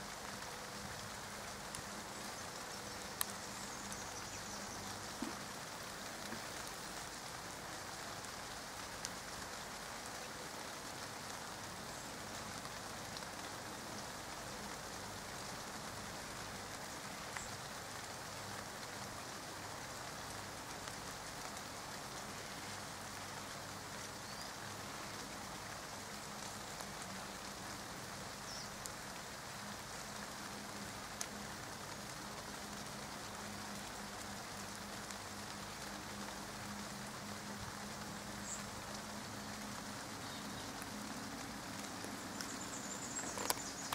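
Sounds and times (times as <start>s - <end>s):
light rain on leaves: 0.0s - 43.9s
single raindrops ticking: 0.1s - 10.4s, 38.4s - 43.9s.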